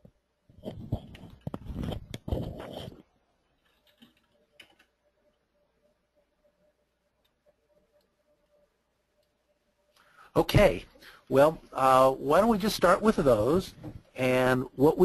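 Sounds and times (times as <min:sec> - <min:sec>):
keyboard typing: 0:03.6 - 0:05.0.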